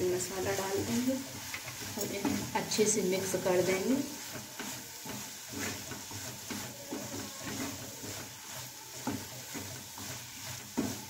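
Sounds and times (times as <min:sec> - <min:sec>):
vegetables sizzling in a pan: 0:00.0 - 0:11.0
wooden spatula scraping a pan: 0:00.0 - 0:11.0.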